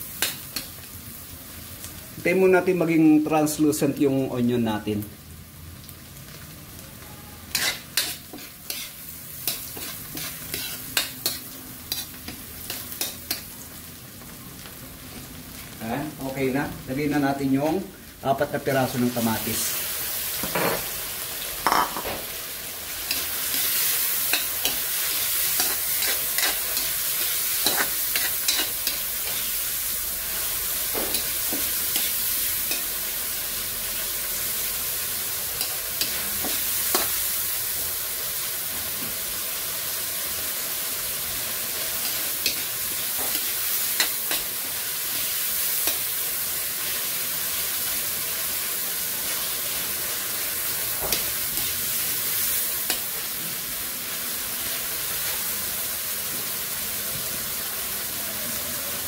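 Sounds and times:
vegetables sizzling in a wok: 0.0 - 59.0
metal spoon scraping a wok: 7.5 - 13.4, 24.3 - 26.9, 27.6 - 29.5.

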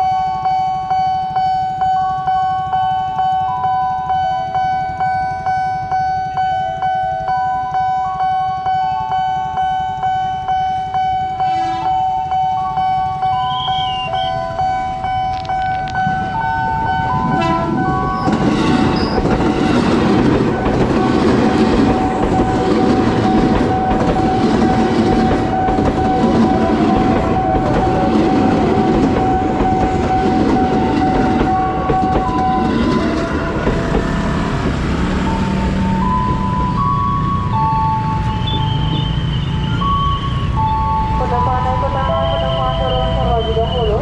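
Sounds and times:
steady high tone: 0.0 - 44.0
stepping tones: 0.7 - 40.9
train wheels clattering over rails: 15.4 - 36.8.

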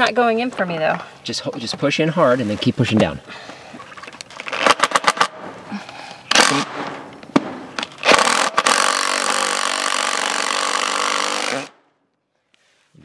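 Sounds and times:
impact driver driving screw into wood: 6.3 - 6.9, 7.7 - 11.8.

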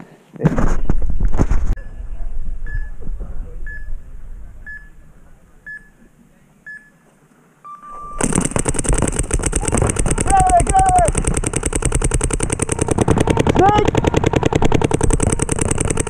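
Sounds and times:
long low beep: 1.8 - 6.1, 7.6 - 8.2
short electronic beeps: 2.6 - 3.0, 3.6 - 4.0, 4.7 - 5.0, 7.6 - 8.3
rapid paintball marker fire: 8.2 - 16.0.

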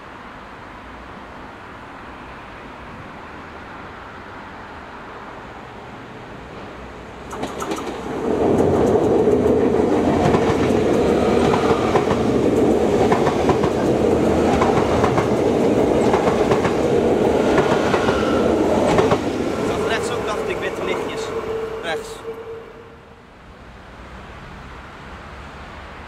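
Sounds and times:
train wheels rumbling on rails: 6.4 - 22.5
wheels clicking over rail joints: 7.3 - 19.7.

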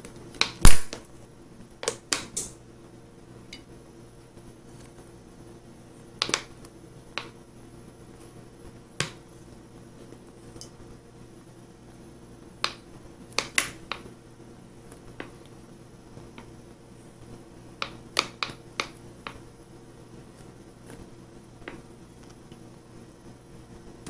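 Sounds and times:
faint steady hum: 0.0 - 24.0
sharp short clicks: 0.4 - 1.0.

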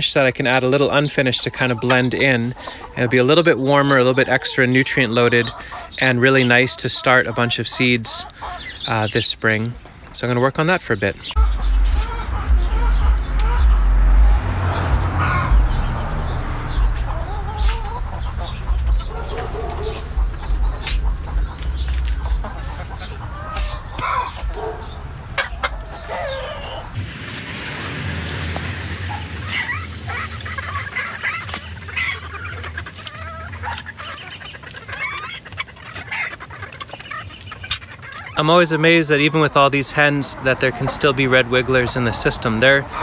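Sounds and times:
hens clucking: 0.0 - 43.0
garden fork scraping compost: 16.8 - 25.0.

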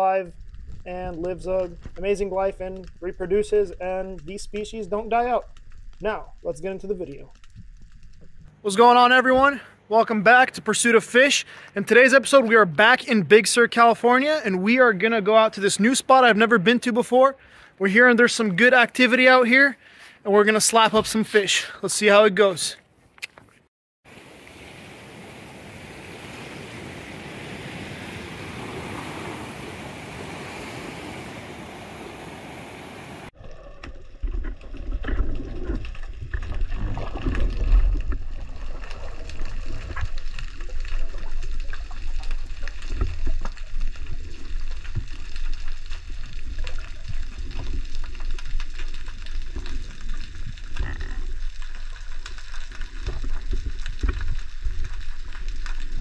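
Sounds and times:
underwater clicks and crackles: 0.3 - 8.5, 33.4 - 56.0
seawater hissing in tide pool: 24.1 - 33.3.

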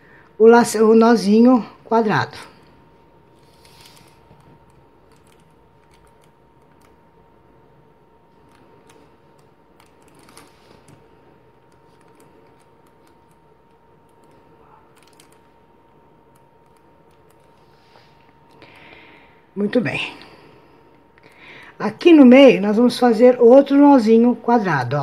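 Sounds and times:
soft rustling of hands: 8.4 - 13.8.

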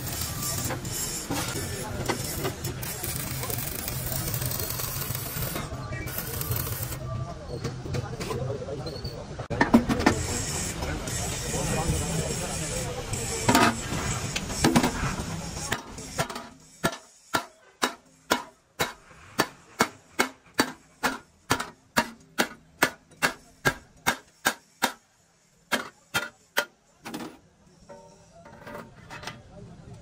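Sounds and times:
hammer striking sheet steel: 15.6 - 26.8.

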